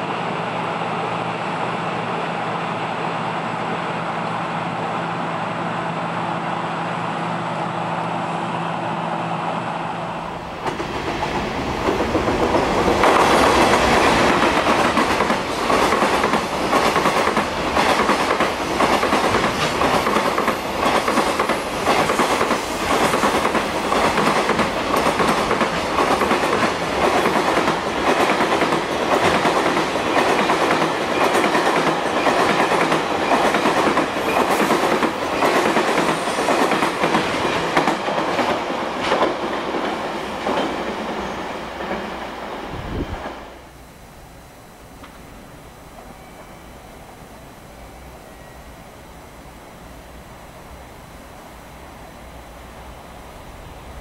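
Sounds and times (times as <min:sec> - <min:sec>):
freight train wheels clattering: 0:10.6 - 0:42.4.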